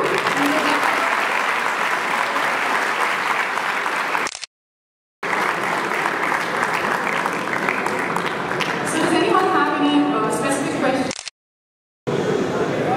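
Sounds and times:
audience applauding: 0.0s - 4.3s, 5.2s - 9.7s.

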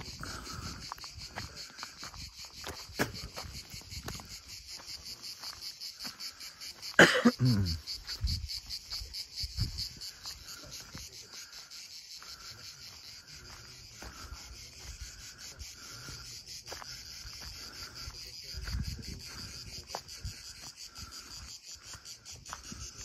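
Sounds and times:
footsteps on gravel: 0.0s - 11.4s, 12.2s - 15.2s, 15.8s - 23.0s
insects chirping: 0.0s - 23.0s.

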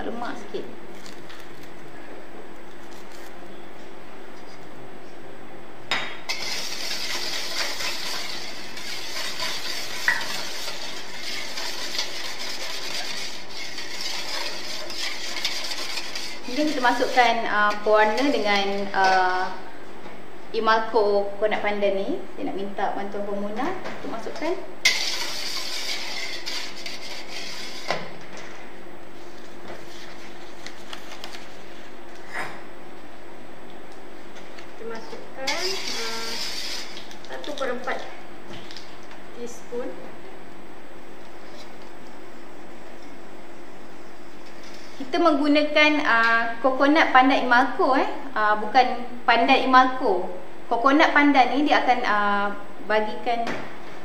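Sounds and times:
steady low hum: 0.0s - 54.0s
whisk clinking on bowl: 6.3s - 17.2s
whisk swishing batter in metal bowl: 6.3s - 18.7s, 24.9s - 28.0s, 35.5s - 37.6s.

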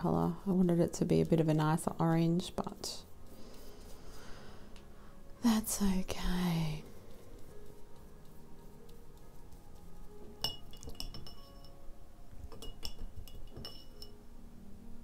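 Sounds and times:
brush clinking against glass jar: 7.1s - 14.2s.

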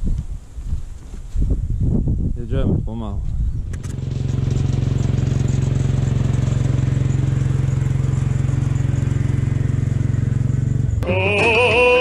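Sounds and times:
small tractor engine running: 3.6s - 12.0s.

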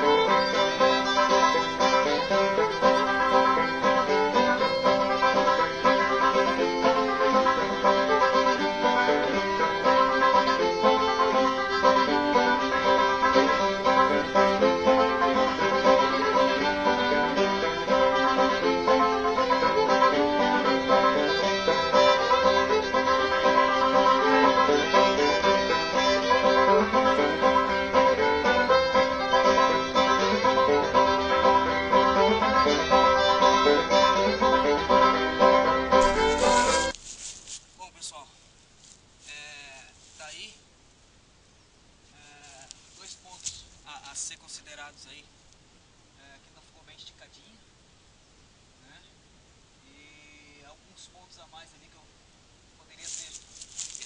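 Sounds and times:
instrumental music: 0.0s - 37.6s.

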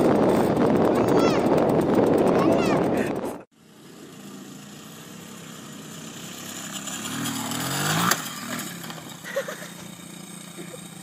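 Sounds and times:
dirt bike engine revving: 3.6s - 11.0s
dirt bike crashing: 6.6s - 9.9s.

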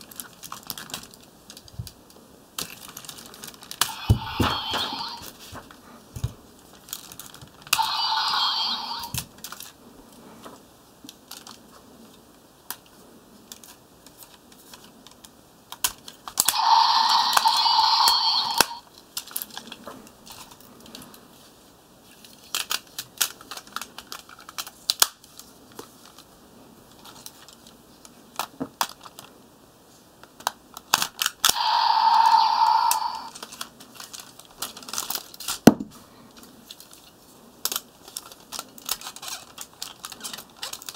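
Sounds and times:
plastic toy parts clicking: 22.4s - 25.2s, 30.4s - 35.6s, 36.7s - 40.9s.

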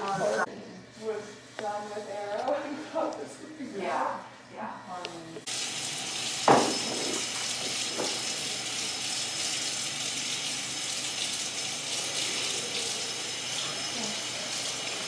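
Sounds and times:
tap water running into sink: 5.5s - 15.0s.

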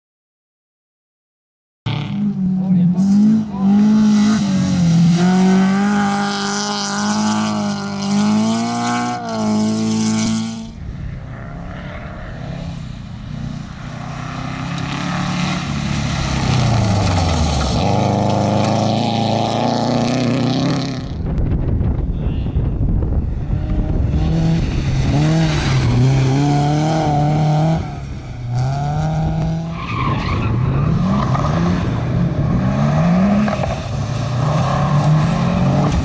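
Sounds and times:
rally car engine at high revs: 1.9s - 12.8s, 13.4s - 21.2s, 23.4s - 36.0s.

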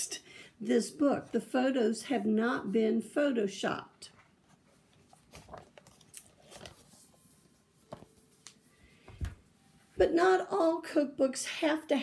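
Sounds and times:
book handling clicks and rustles: 4.1s - 9.4s
book set down thump: 7.9s - 8.1s, 9.1s - 9.4s.

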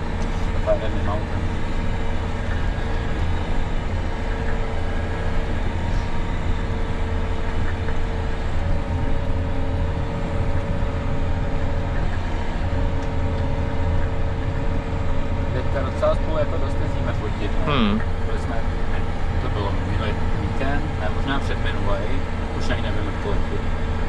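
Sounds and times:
tractor engine droning: 0.0s - 24.0s.

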